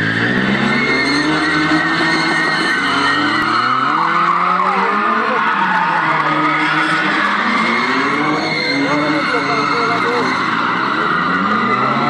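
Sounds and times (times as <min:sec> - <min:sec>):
car engines revving: 0:00.0 - 0:12.0
tyres skidding and squealing: 0:00.0 - 0:12.0.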